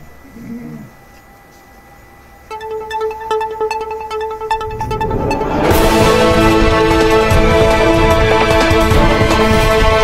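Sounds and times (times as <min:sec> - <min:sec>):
held tone: 0:02.5 - 0:06.7
short plucked notes: 0:02.5 - 0:07.5
theme music: 0:02.5 - 0:10.0.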